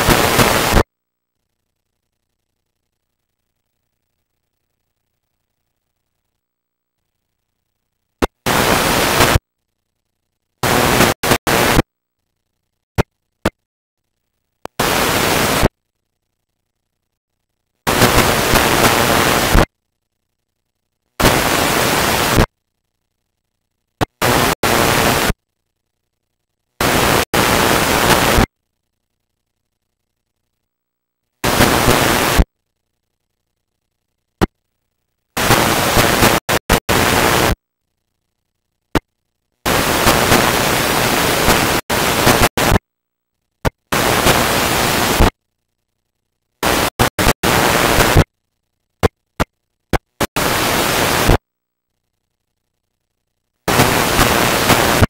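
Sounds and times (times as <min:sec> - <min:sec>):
videotape static hiss: 0:00.0 - 0:55.0.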